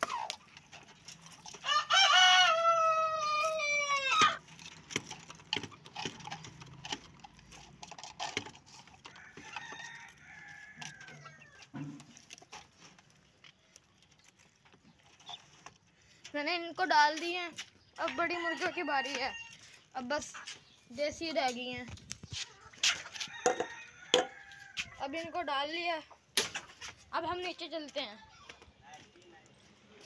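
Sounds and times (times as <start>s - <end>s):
rooster crowing: 1.6s - 4.1s, 23.2s - 24.9s.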